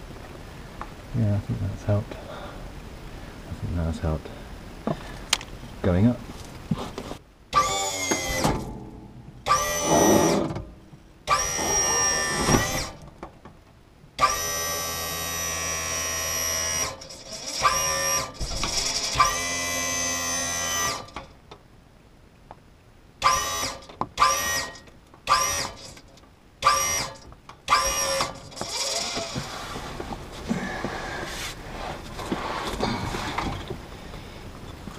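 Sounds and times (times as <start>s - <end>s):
jack motor whining: 7.5s - 13.1s, 14.2s - 21.3s, 23.2s - 31.3s.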